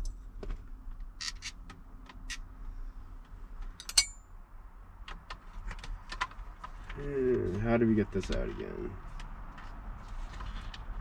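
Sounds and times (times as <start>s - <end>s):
metal parts and tools clicking: 1.2s - 1.6s, 3.8s - 4.2s
sharp metallic clink: 3.8s - 4.3s.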